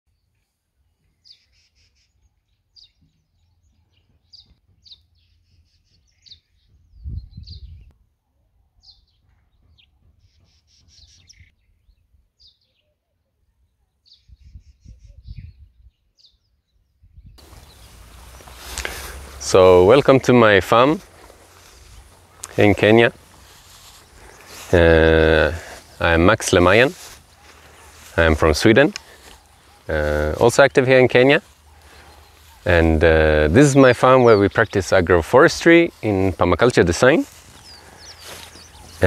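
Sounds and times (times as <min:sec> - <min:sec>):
small birds chirping: 0:00.1 - 0:07.9, 0:08.7 - 0:39.0
wind rumble on microphone: 0:06.7 - 0:07.9, 0:14.2 - 0:16.0, 0:17.0 - 0:18.5.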